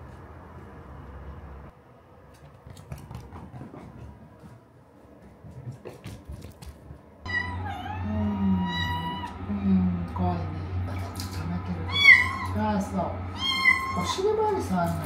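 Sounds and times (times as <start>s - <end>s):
kitten paws clicking on wooden floor: 2.3s - 7.2s.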